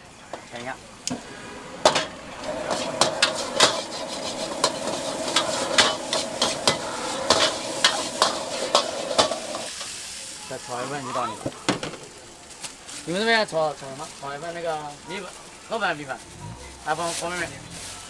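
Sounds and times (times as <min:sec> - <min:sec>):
food sizzling: 0:00.0 - 0:18.0
metal ladle scraping a wok: 0:01.2 - 0:09.9.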